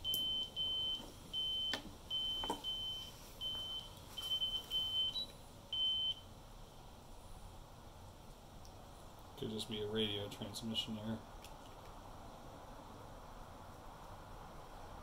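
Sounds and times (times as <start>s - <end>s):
electronic warning beeps: 0.0s - 6.3s.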